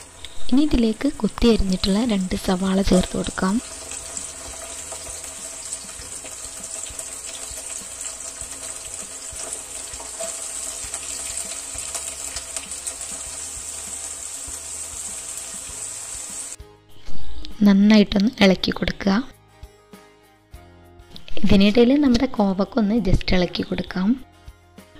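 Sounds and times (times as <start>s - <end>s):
onions sizzling in oil: 0.0s - 16.6s.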